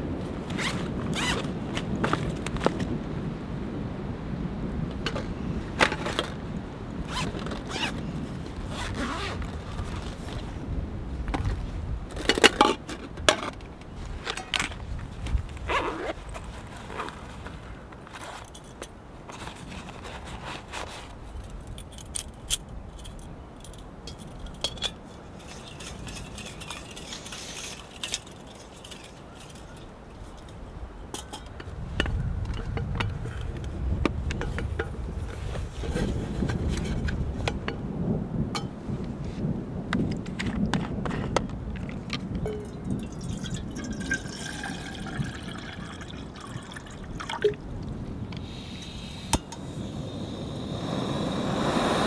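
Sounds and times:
small metallic clicks and scrapes: 0:18.1 - 0:37.8
metal pots knocking and clinking: 0:30.4 - 0:33.5, 0:42.4 - 0:47.6.

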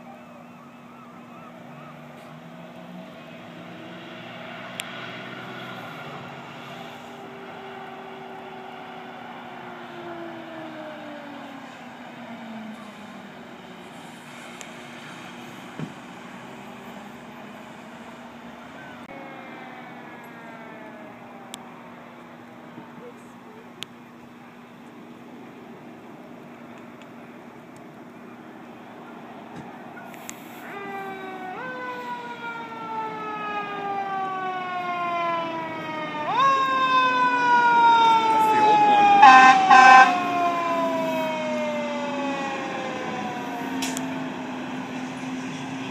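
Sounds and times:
distant emergency siren: 0:00.0 - 0:45.9
distant traffic hum: 0:00.0 - 0:45.9.

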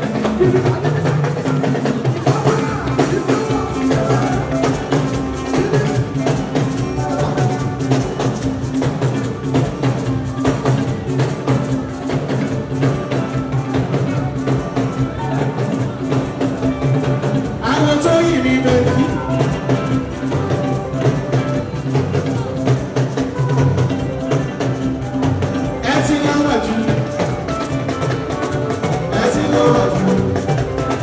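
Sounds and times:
drums and percussion: 0:00.0 - 0:31.0
electric bass guitar: 0:00.0 - 0:31.0.

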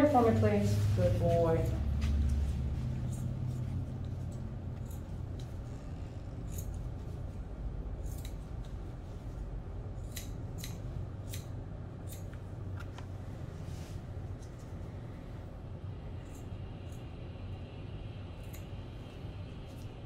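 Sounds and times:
shears snipping: 0:01.2 - 0:07.3, 0:08.0 - 0:08.9, 0:10.0 - 0:12.5.

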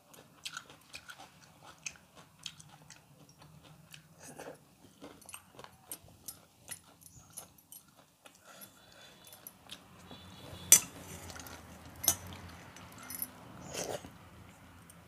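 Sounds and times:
metal clinks on steel bowl: 0:10.7 - 0:11.0.

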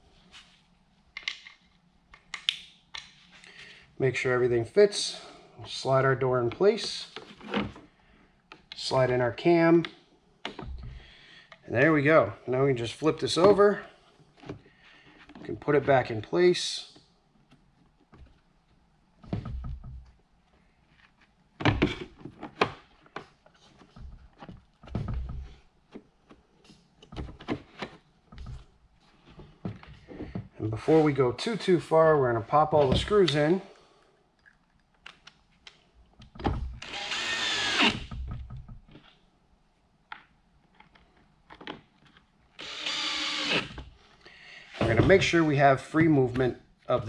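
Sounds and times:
cordless drill whining: 0:36.8 - 0:38.2, 0:42.6 - 0:43.8.

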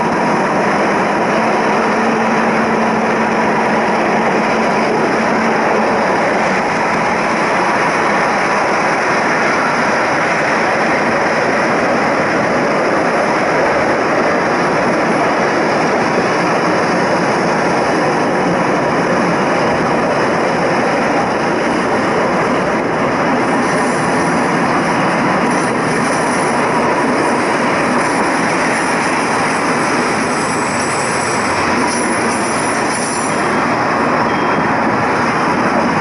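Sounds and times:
railcar engine and wheels rumbling: 0:00.0 - 0:36.0
faint high squeal: 0:34.2 - 0:34.8.

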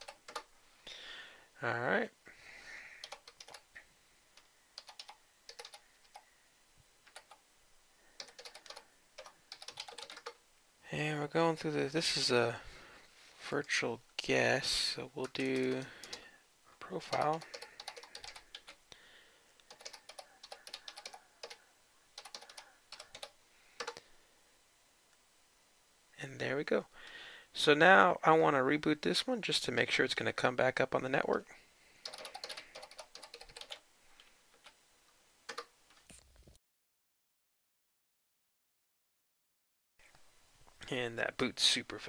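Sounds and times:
computer keyboard keystrokes: 0:00.0 - 0:00.5, 0:03.0 - 0:03.6, 0:04.8 - 0:06.2, 0:07.1 - 0:07.4, 0:08.2 - 0:10.4, 0:15.2 - 0:16.2, 0:17.1 - 0:18.8, 0:19.7 - 0:21.6, 0:22.2 - 0:24.0, 0:32.0 - 0:33.8, 0:35.5 - 0:35.7.

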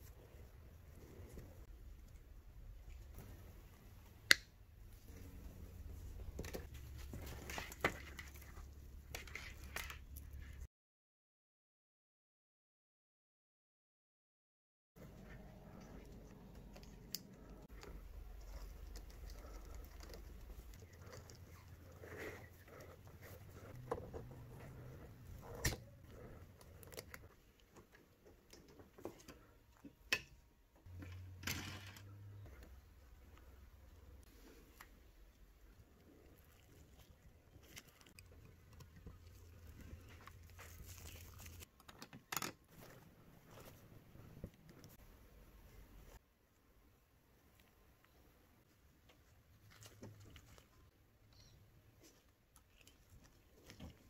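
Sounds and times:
cables rustling: 0:04.8 - 0:10.7, 0:15.0 - 0:30.0, 0:30.8 - 0:46.2.

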